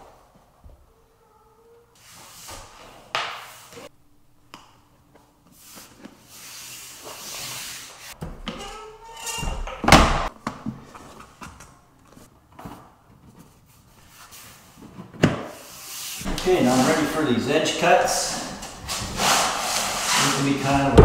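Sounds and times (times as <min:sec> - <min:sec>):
plank sliding with soft scraping: 0:16.2 - 0:17.2.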